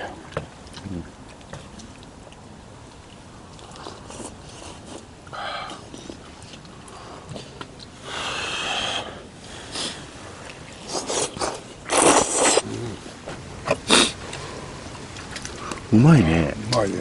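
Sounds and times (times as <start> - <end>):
person slurping noodles: 10.8 - 13.0.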